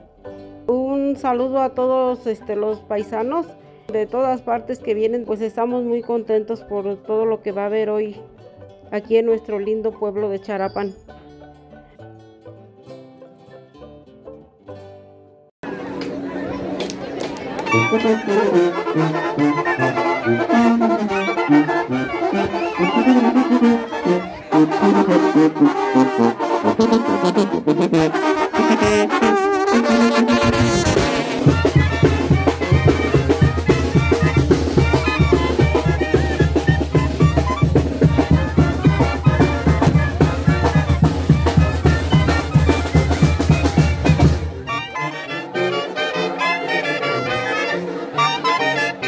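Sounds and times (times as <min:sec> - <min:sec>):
brass band playing: 0:17.4 - 0:49.0.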